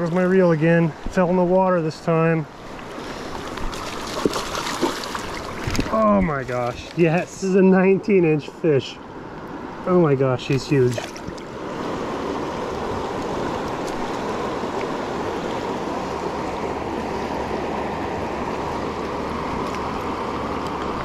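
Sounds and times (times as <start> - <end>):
river water rushing: 0.0 - 21.0.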